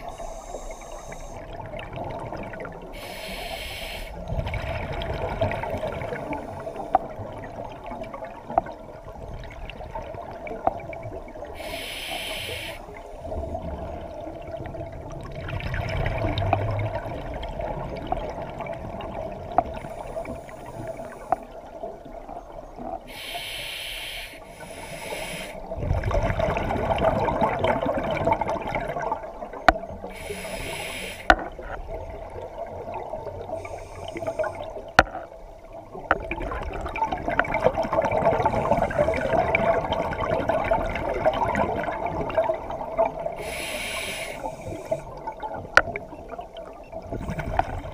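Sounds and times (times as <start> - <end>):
hissing regulator inhalations: 0.0 - 1.4, 3.0 - 4.2, 11.6 - 13.0, 23.1 - 25.7, 30.1 - 31.4, 33.6 - 34.7, 43.4 - 45.2.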